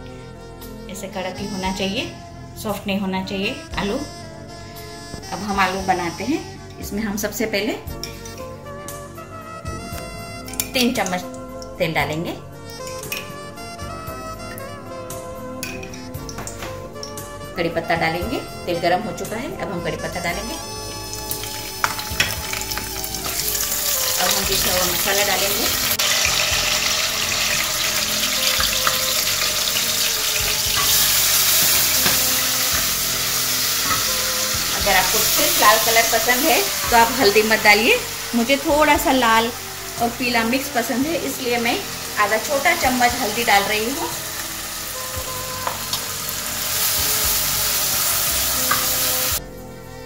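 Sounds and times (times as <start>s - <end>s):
paste sizzling in hot oil: 21.0s - 49.4s.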